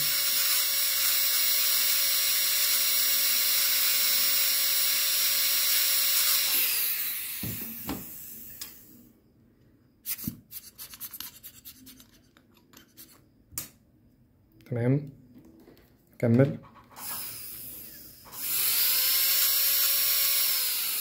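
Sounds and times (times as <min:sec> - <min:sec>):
dental drill whining: 0:00.0 - 0:09.0, 0:17.0 - 0:21.0
metal probe scratching plastic: 0:10.1 - 0:13.2.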